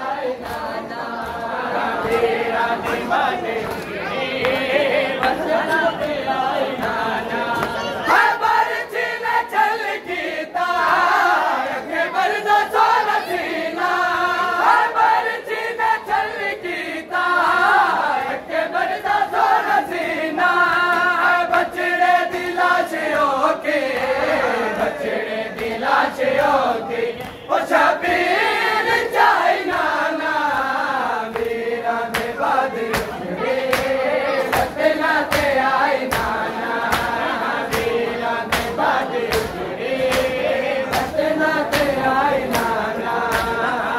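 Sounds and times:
men chanting in unison: 0.0s - 43.9s
hands slapping chest: 31.3s - 43.7s.

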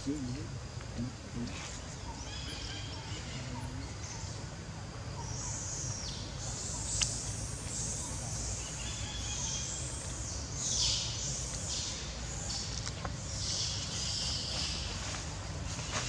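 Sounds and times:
high hissing drone: 0.0s - 4.4s.

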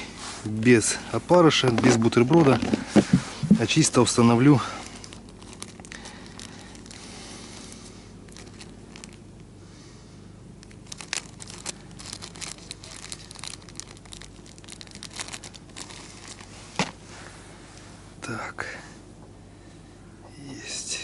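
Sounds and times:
faint low hum: 0.0s - 21.0s
rustling of fishing tackle: 4.8s - 9.2s, 10.6s - 17.8s.

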